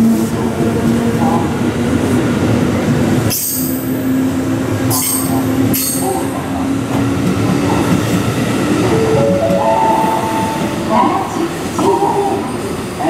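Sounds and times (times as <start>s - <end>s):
train wheels rolling on rails: 0.0s - 13.0s.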